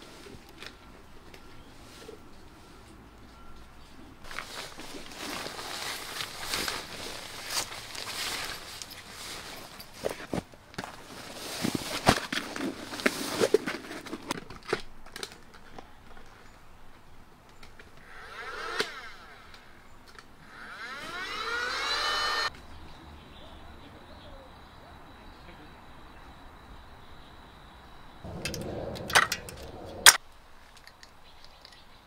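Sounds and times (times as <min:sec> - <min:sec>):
nylon crinkling and rustling: 0:04.3 - 0:16.4
rising hiss: 0:28.3 - 0:30.2.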